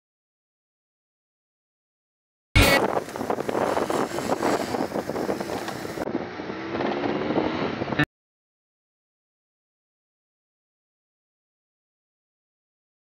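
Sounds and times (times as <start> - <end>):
wind buffeting microphone: 2.6 - 8.1.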